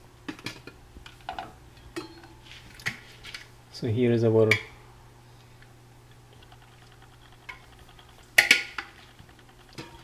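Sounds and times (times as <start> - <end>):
low steady hum: 0.0 - 10.0
kitchenware clinking: 0.4 - 2.4, 7.3 - 10.0.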